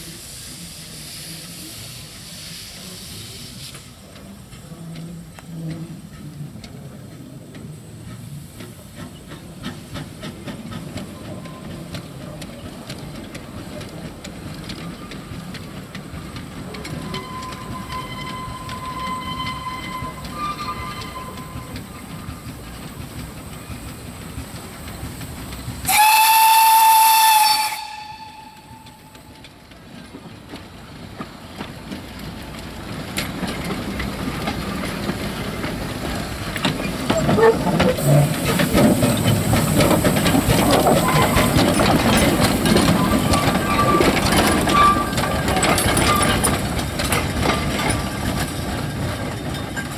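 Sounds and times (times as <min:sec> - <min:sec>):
steam locomotive hissing: 0:00.0 - 0:49.9
steam whistle blast: 0:17.0 - 0:21.7, 0:25.9 - 0:29.2.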